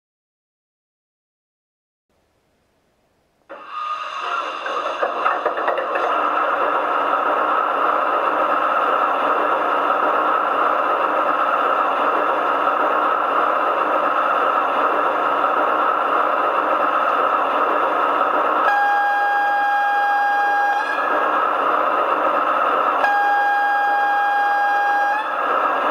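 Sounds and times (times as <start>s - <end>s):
train horn tone: 18.6s - 21.3s, 23.0s - 25.6s.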